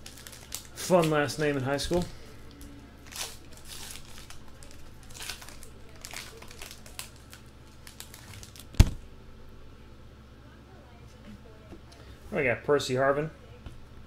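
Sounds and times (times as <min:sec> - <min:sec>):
wrapper crinkling and rustling: 0:00.0 - 0:09.0.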